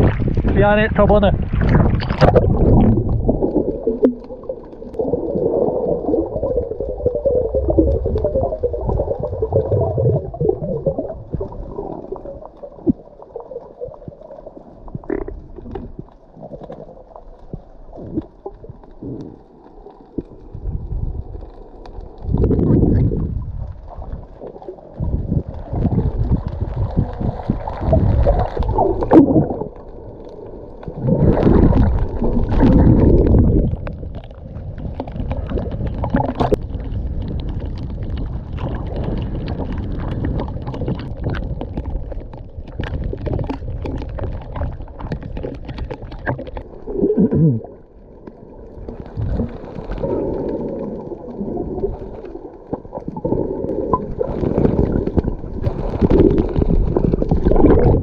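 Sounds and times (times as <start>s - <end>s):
muffled water sloshing and gurgling: 0.0s - 58.0s.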